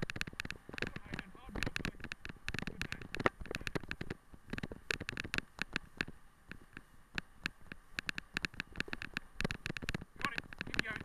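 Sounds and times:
wheeled rig rattling on dirt track: 0.0s - 5.7s, 8.4s - 11.0s.

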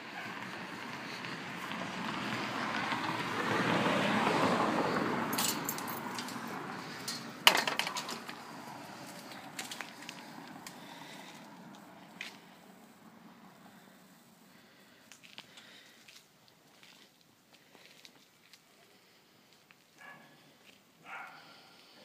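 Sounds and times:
vehicle passing: 0.0s - 16.0s
metallic clink and rattle: 5.3s - 8.4s.

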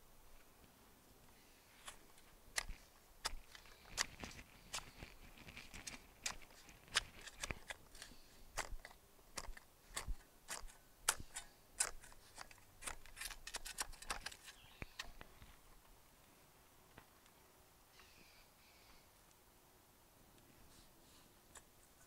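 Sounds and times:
soil being dug by hand: 1.6s - 15.6s.

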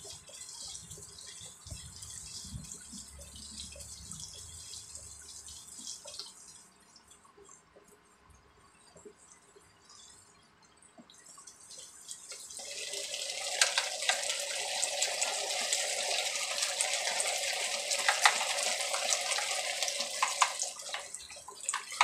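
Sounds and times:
sauce bubbling and sizzling: 11.4s - 22.0s.

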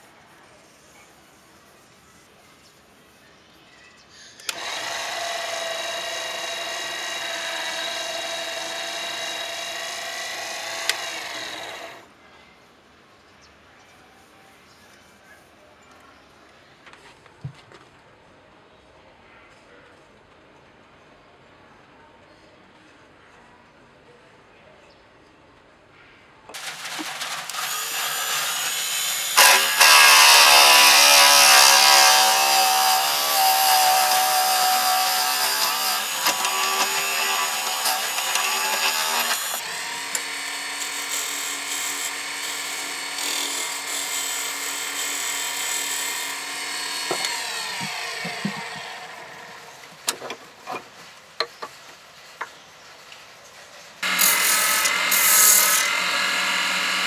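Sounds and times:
lathe tool cutting wood: 4.5s - 12.0s, 26.6s - 50.2s, 54.0s - 57.0s.

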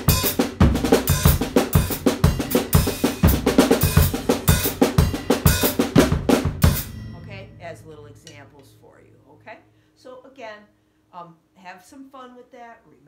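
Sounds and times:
fast acoustic drum kit: 0.0s - 9.5s
cymbal accents: 2.5s - 10.3s.

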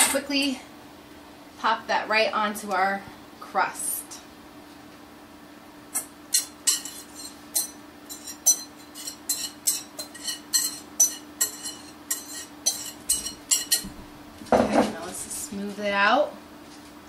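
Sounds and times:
metal whisk tapping mixing bowl: 6.4s - 13.9s.

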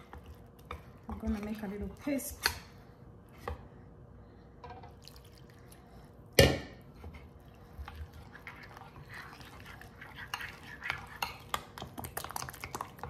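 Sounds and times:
spoon scraping in glass bowl: 8.3s - 11.6s.

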